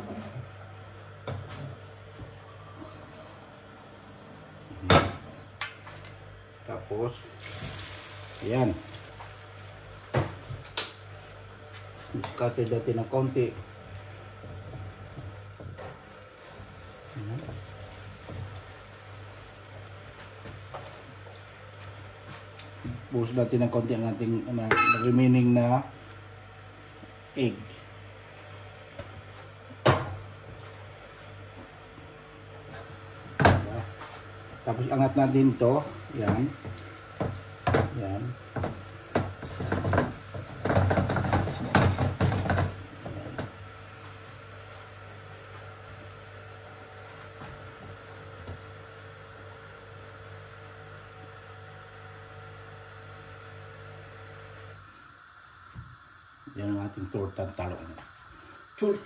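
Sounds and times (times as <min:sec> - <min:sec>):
omelette sizzling in oil: 0:07.4 - 0:29.5, 0:34.0 - 0:59.0.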